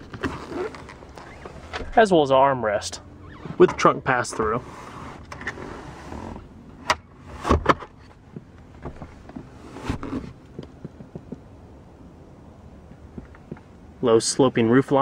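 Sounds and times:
rustling: 0.0s - 2.0s.

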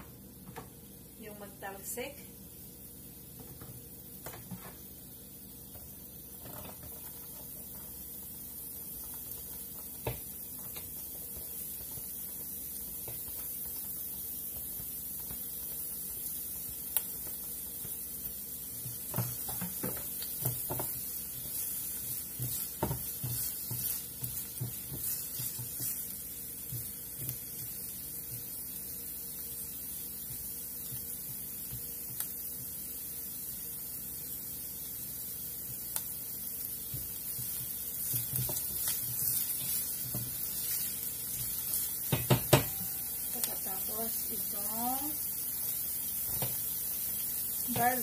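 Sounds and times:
garlic sizzling in oil: 0.0s - 48.0s
spatula scraping and knocking pan: 18.8s - 28.5s, 36.8s - 43.7s.

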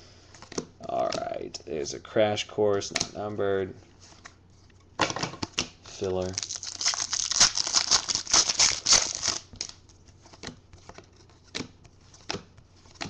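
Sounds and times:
foil wrapper tearing and crinkling: 6.2s - 9.8s.

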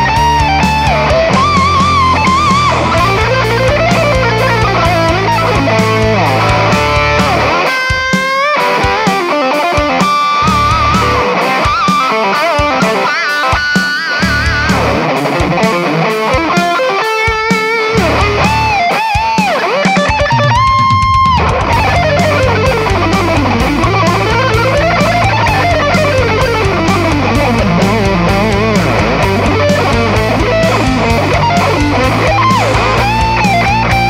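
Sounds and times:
backing track with beat and bass: 0.0s - 34.0s
distorted electric guitar lead: 0.0s - 34.0s.

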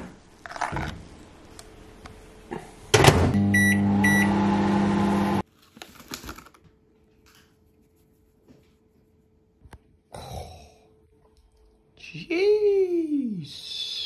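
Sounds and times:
microwave oven humming: 2.9s - 5.4s.

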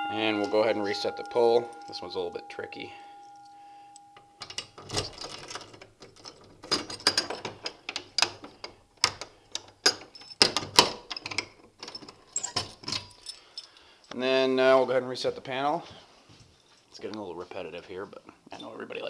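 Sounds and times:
bell tone: 0.0s - 4.8s
fire alarm mechanism clicking and rattling: 0.0s - 13.9s.

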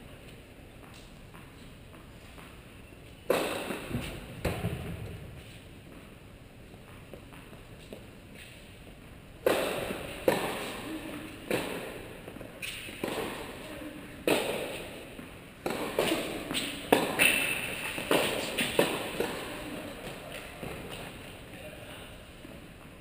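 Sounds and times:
racquets hitting tennis ball: 3.2s - 6.2s, 9.4s - 21.6s
tennis ball bouncing: 3.2s - 6.2s, 9.4s - 21.4s.

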